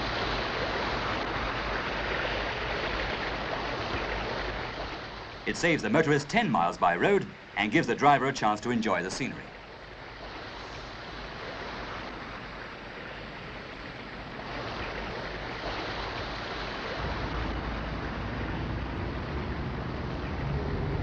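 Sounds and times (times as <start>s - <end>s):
water churning against hull: 0.0s - 21.0s
low rumble: 17.0s - 21.0s.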